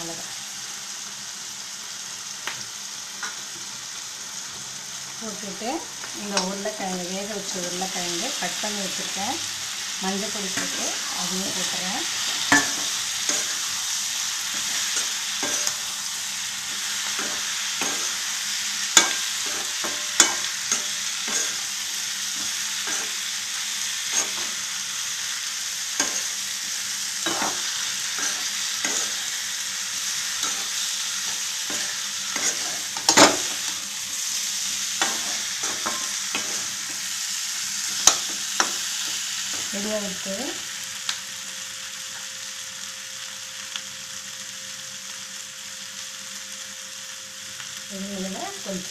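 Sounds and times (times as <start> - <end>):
potatoes sizzling in oil: 0.0 - 48.9
spoon scraping pan: 14.5 - 15.9, 16.7 - 23.2, 24.0 - 24.6, 27.2 - 29.4, 30.3 - 33.8, 34.9 - 37.1.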